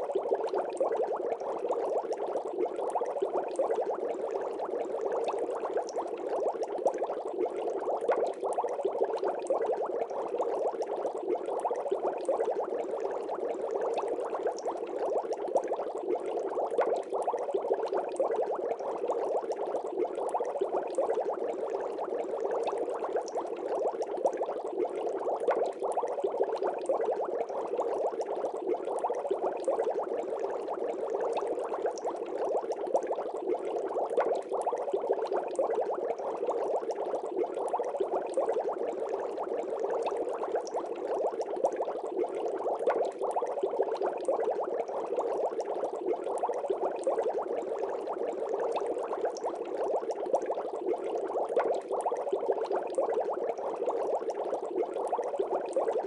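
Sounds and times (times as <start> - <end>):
water bubbling: 0.0 - 56.0.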